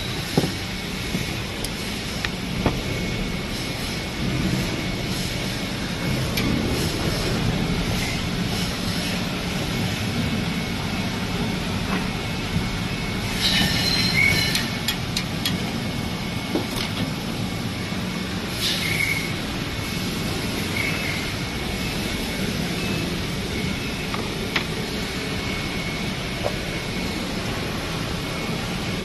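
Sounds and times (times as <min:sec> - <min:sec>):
machine droning with whine: 0:00.0 - 0:29.0
hissing and squealing: 0:13.2 - 0:15.1, 0:18.5 - 0:24.0.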